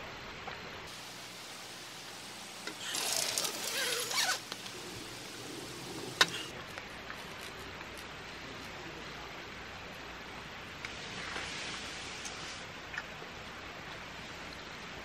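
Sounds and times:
steady hiss: 0:00.0 - 0:15.0
rustling: 0:02.6 - 0:09.0.

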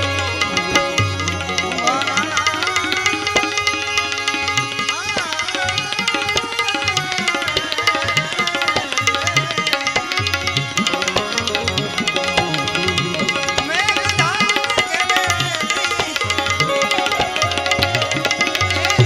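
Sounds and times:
tabla rhythm: 0:00.0 - 0:19.0
wavering melody line: 0:00.0 - 0:19.0.

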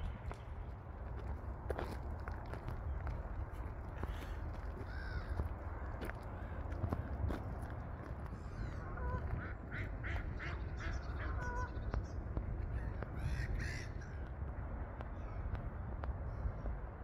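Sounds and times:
ducks quacking: 0:08.4 - 0:12.2.

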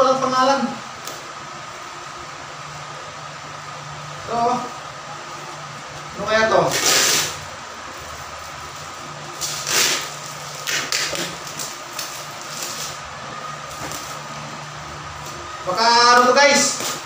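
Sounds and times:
steady low hum: 0:00.0 - 0:17.0
plastic wrapping crinkling: 0:08.0 - 0:13.0.

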